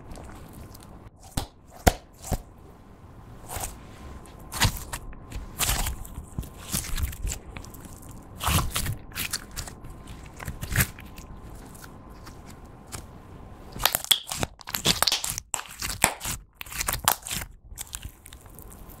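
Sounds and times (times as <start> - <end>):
slime squelching and popping: 4.5 - 13.1, 13.7 - 19.0.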